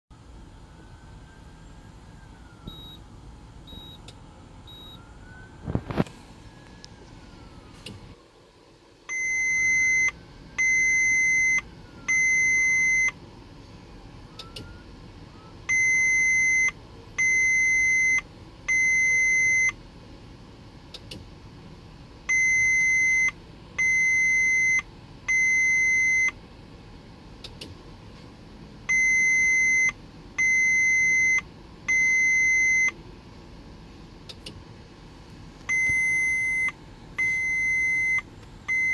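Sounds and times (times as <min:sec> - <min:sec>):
warning chime long beeps: 0:02.6 - 0:03.0, 0:04.7 - 0:05.2.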